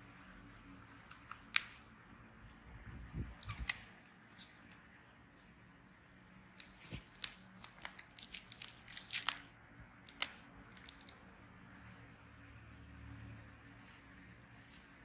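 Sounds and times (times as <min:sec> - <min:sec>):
small irregular clicks and crackles: 0:00.4 - 0:01.9, 0:03.3 - 0:05.0, 0:05.8 - 0:12.2.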